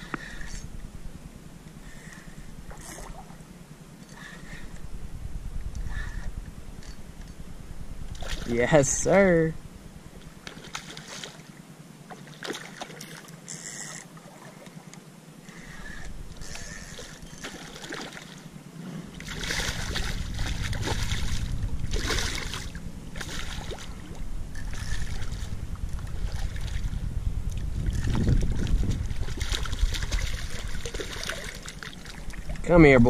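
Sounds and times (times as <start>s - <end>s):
low rumble: 0.0s - 10.8s, 15.6s - 17.5s, 18.5s - 33.0s
fish splashing in water: 10.4s - 11.5s, 12.1s - 14.6s, 16.4s - 18.4s, 19.2s - 27.0s, 27.8s - 32.6s.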